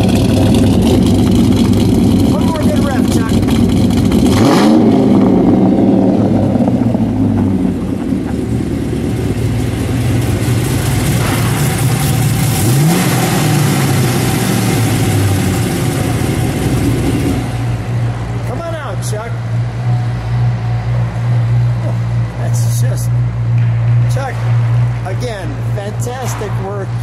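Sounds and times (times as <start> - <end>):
car engine revving and idling: 0.0 - 27.0.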